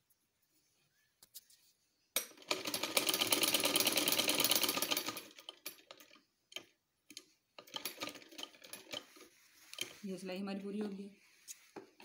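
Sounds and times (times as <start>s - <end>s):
sewing machine stitching: 2.3s - 10.0s.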